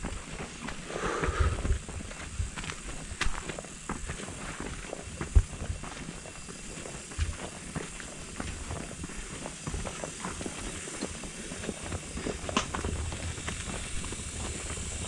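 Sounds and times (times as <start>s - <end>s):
footsteps on dirt trail: 0.0s - 15.0s.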